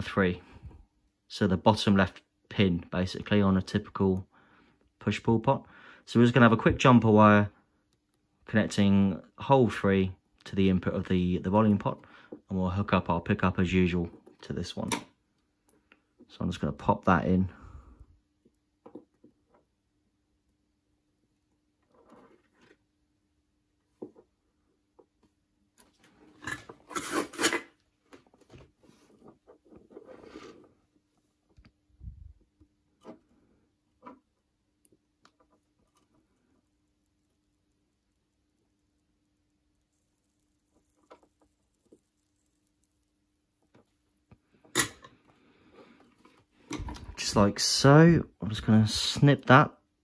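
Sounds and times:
hands rubbing wires on workbench: 28.7 - 31.0.

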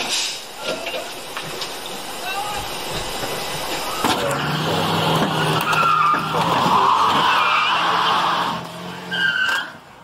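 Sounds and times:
tyres squealing on pavement: 0.0 - 9.9
car engine running hard: 0.4 - 10.0.

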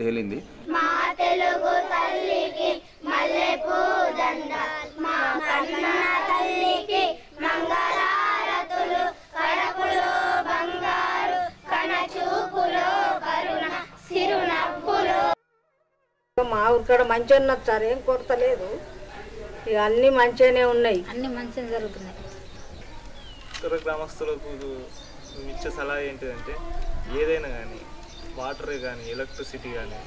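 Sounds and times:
children chanting: 0.7 - 15.4.

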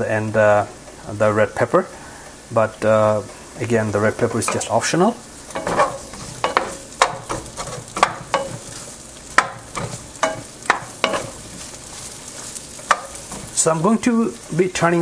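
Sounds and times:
onion sizzling in oil: 0.0 - 15.0
spatula scraping a pan: 5.4 - 14.6.

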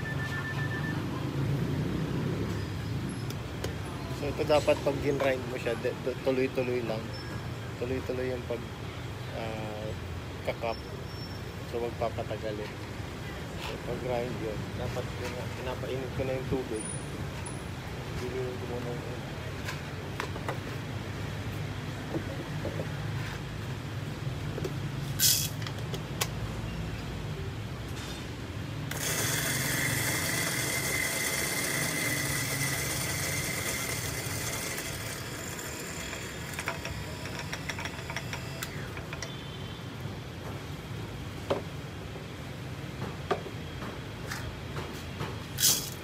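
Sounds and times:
electric coffee grinder whining: 28.9 - 39.2.

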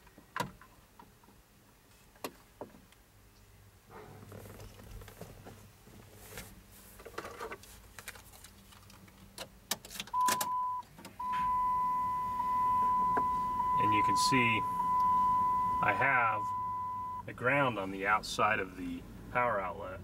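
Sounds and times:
high electronic warning tone: 10.2 - 17.2.

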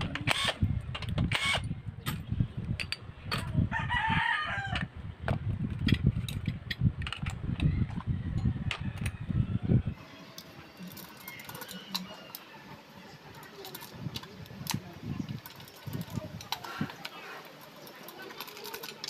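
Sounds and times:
rooster crowing: 3.7 - 4.9
metal parts and tools clinking: 5.7 - 9.2, 10.2 - 19.0.

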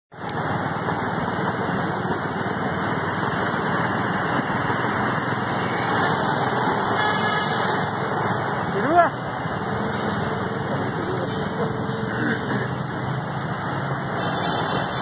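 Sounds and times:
vehicle engine and road noise: 0.1 - 15.0.

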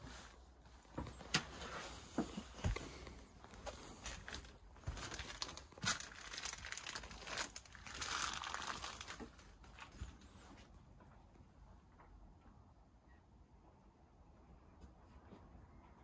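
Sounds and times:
debris crinkling and rustling: 2.6 - 10.3.

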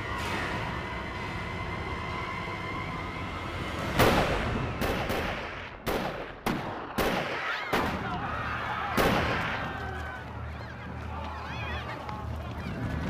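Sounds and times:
gunshots: 4.0 - 9.7
voices crying out: 7.4 - 13.0.

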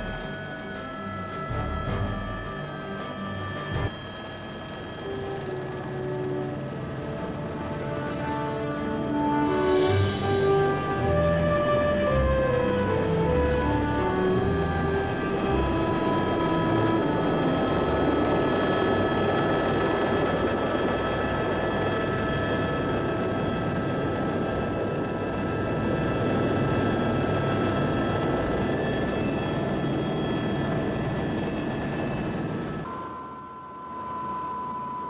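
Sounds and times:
helicopter turbine whine: 0.0 - 35.0.

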